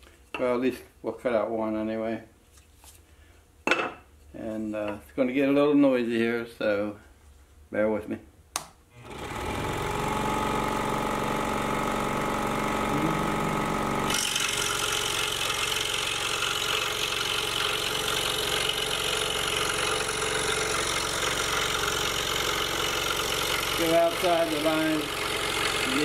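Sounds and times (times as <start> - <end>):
scroll saw motor humming: 9.0 - 26.0
saw blade rasping through wood: 14.1 - 26.0.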